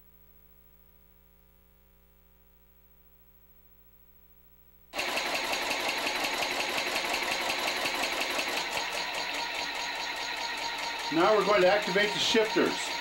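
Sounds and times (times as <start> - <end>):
rapid mechanical clatter: 5.0 - 13.0.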